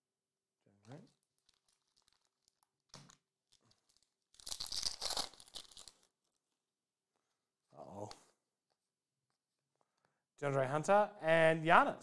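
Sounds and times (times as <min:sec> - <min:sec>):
foil wrapper tearing: 0:01.2 - 0:06.1.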